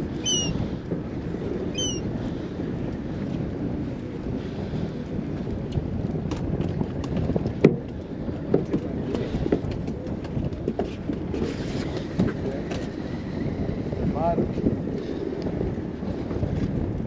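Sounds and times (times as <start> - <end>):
boat engine rumble: 0.0 - 17.0
wind on microphone: 0.0 - 17.0.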